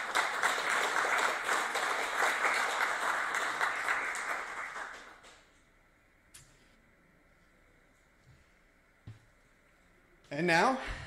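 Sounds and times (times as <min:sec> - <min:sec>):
audience applauding: 0:00.0 - 0:05.5.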